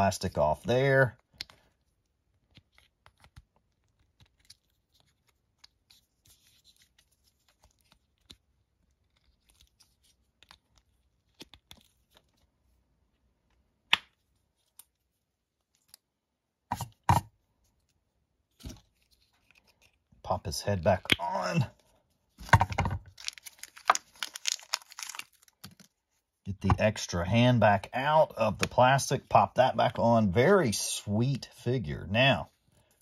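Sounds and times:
plastic crinkling and rustling: 22.4s - 26.0s.

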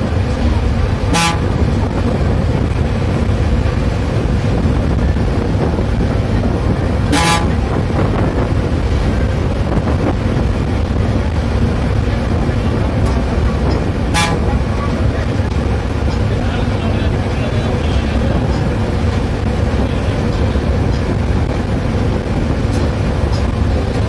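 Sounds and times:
bus engine and road noise: 0.0s - 24.0s
bus horn toots: 1.1s - 1.7s, 7.0s - 7.7s, 14.1s - 14.9s.

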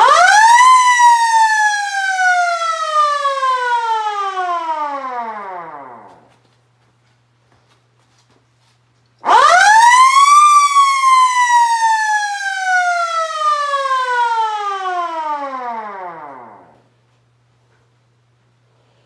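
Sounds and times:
siren winding up and wailing: 9.2s - 16.7s.

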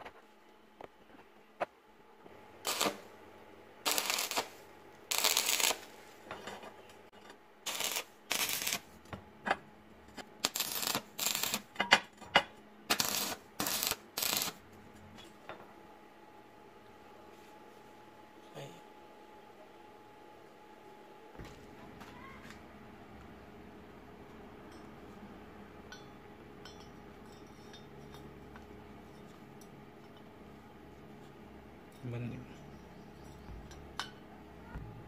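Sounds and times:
welding arc crackling: 2.6s - 3.1s, 3.8s - 6.0s, 7.6s - 8.9s, 10.4s - 11.7s, 12.9s - 14.6s.

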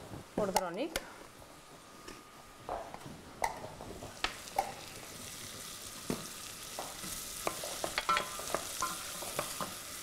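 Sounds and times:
vegetables sizzling in a pot: 3.4s - 10.0s.

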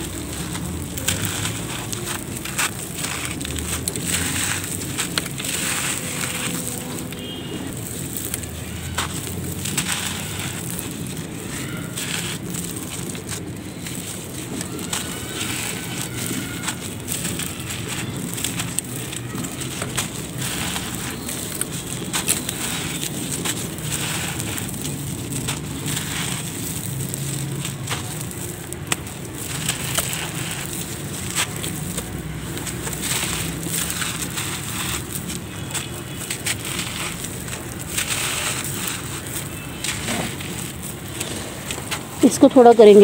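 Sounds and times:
gritty lumps crumbled by hand: 0.0s - 43.0s.

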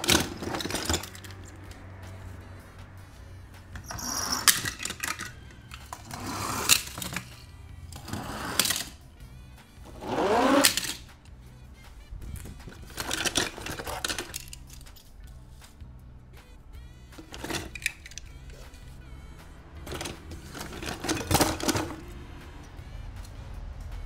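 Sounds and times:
toy car wheels rattling on plastic: 0.0s - 1.7s, 3.7s - 9.0s, 9.9s - 11.2s, 12.5s - 15.1s, 17.2s - 18.6s, 19.8s - 22.1s.

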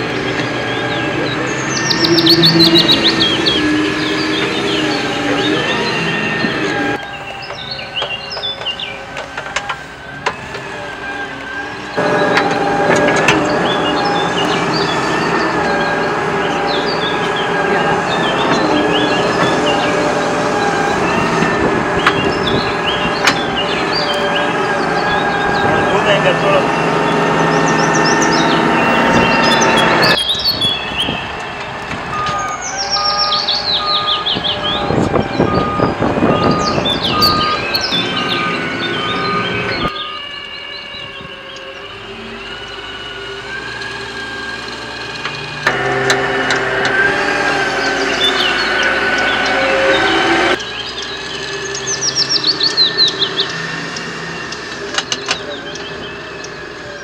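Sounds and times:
birds chirping: 0.0s - 57.0s
truck engine running: 0.0s - 57.0s
reversing alarm beeps: 28.2s - 31.3s, 32.0s - 46.4s.

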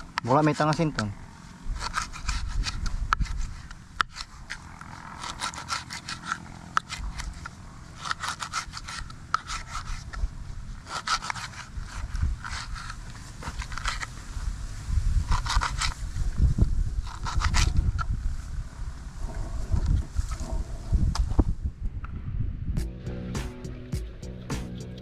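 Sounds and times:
quick scraping strokes: 0.2s - 14.2s
low rumble: 17.8s - 25.0s.

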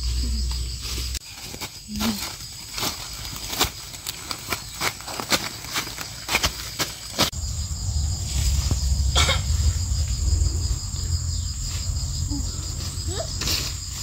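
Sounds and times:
insects droning: 0.0s - 14.0s
low rumble: 7.3s - 13.5s.

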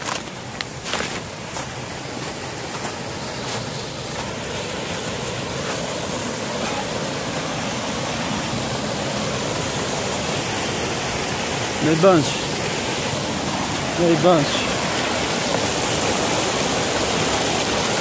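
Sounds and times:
faint footsteps: 0.0s - 6.0s
waterfall rushing: 0.0s - 18.0s.

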